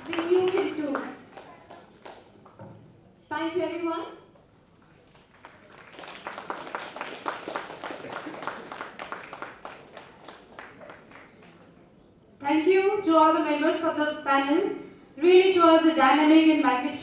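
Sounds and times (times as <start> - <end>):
audience applauding: 0.0 - 2.4, 4.8 - 11.5.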